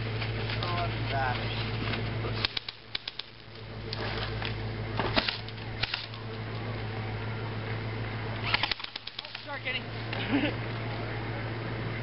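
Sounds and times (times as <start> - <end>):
faint outdoor hiss: 0.0 - 12.0
steady low hum: 0.0 - 12.0
sharp clicks and snaps: 2.4 - 4.0, 8.5 - 9.5.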